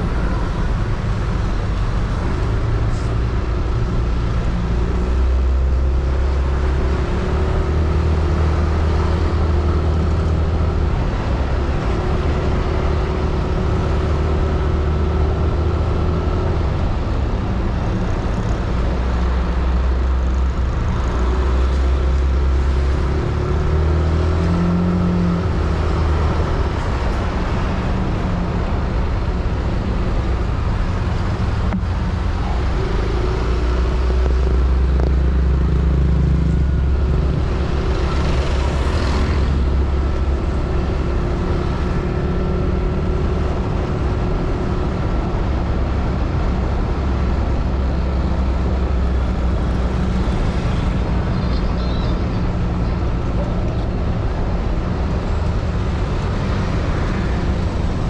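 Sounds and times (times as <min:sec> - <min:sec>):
road and traffic noise: 0:00.0 - 0:58.0.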